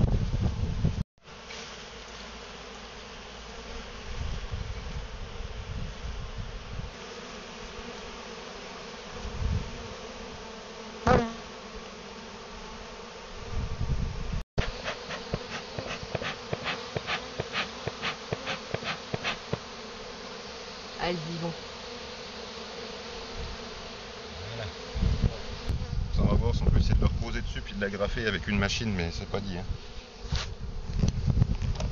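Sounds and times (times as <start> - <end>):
honeybees buzzing: 0.2 - 31.9
loud buzz: 14.6 - 19.7.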